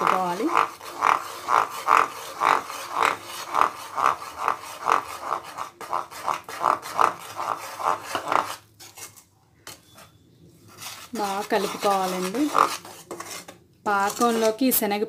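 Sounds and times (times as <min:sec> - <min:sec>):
metal spoon scraping a pan: 0:00.0 - 0:14.9.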